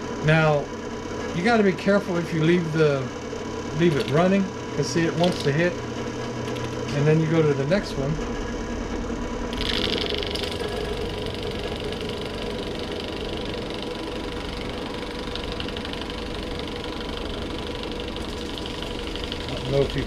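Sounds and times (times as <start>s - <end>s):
drill press running: 0.0s - 20.0s.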